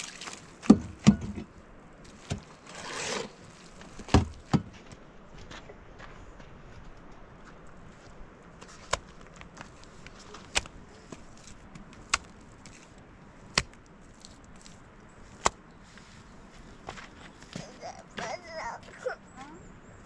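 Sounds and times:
wet mud slapping: 0.0 - 1.1, 8.6 - 12.9, 13.5 - 14.8, 15.4 - 15.6.

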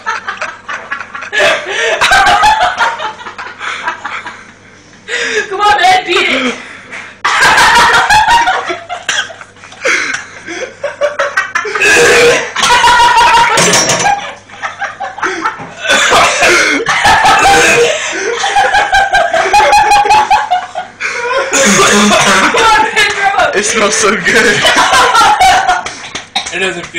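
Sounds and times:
laughter: 0.0 - 4.6, 7.2 - 23.4, 24.2 - 26.4
man coughing and gagging: 9.0 - 10.2, 11.6 - 14.2, 15.8 - 18.1, 21.5 - 22.9.

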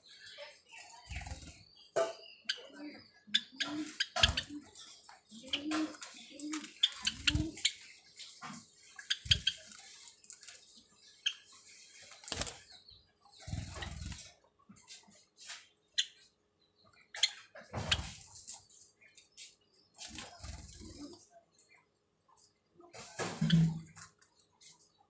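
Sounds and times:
wing flutters and rustling: 0.7 - 1.7, 3.8 - 16.1, 17.2 - 21.3.

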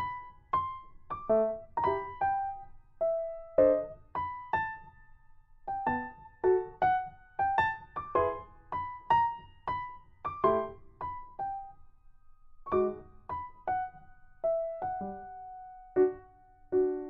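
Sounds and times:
gentle piano melody: 0.0 - 17.0.

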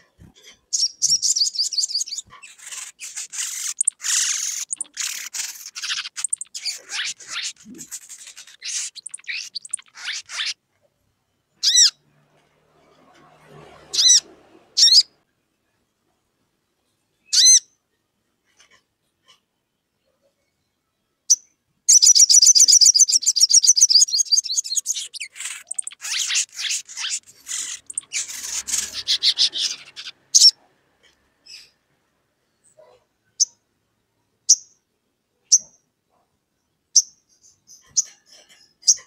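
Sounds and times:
sunbird calling: 0.7 - 10.6, 21.9 - 30.6.

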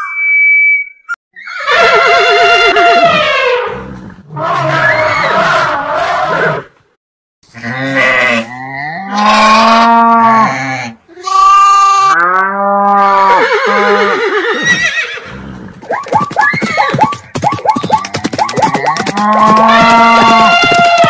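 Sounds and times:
cartoon animal calls: 15.8 - 21.0.

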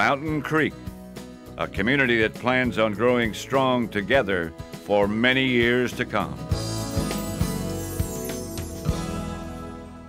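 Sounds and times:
held music chords: 6.4 - 10.0.

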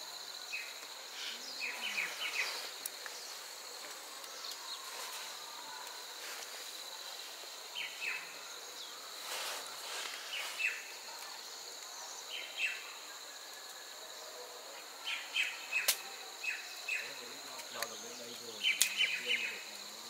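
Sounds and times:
insects droning: 0.0 - 20.0
bird chirping: 0.4 - 5.8, 15.0 - 19.6.

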